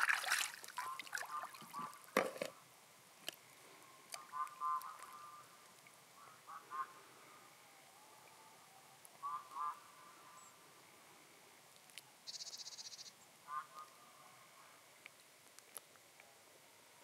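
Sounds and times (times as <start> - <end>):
frogs croaking: 0.7 - 2.2, 3.8 - 8.2, 9.1 - 10.8, 12.2 - 14.8.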